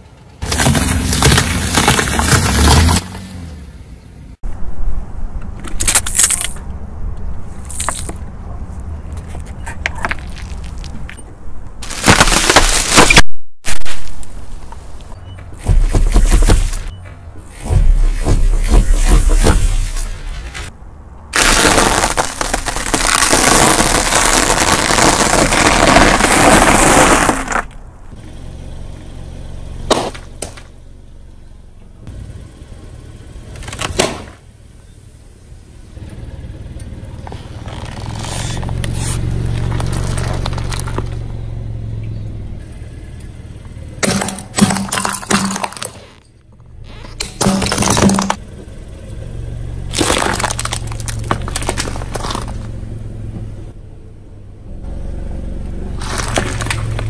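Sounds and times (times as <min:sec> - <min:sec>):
car rumble: 0:00.0 - 0:57.0
fruit cracking under tyre: 0:05.6 - 0:06.7, 0:07.6 - 0:08.3, 0:09.2 - 0:11.0, 0:11.8 - 0:14.3, 0:21.3 - 0:27.8, 0:29.9 - 0:30.7, 0:33.6 - 0:34.4, 0:37.6 - 0:41.3, 0:44.0 - 0:46.3, 0:47.1 - 0:48.4, 0:49.9 - 0:52.7, 0:56.0 - 0:57.0
tyre crunching dry toast: 0:11.8 - 0:14.1, 0:21.4 - 0:27.7, 0:49.9 - 0:52.6, 0:56.0 - 0:57.0
tomatoes popping: 0:11.8 - 0:14.3, 0:21.4 - 0:27.7, 0:49.9 - 0:52.6, 0:56.0 - 0:57.0.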